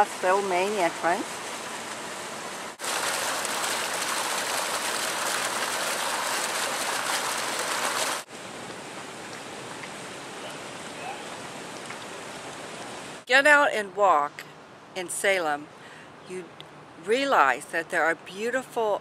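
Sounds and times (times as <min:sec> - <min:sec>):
outdoor background: 0:00.0 - 0:19.0
fountain jet splashing water: 0:02.7 - 0:13.0.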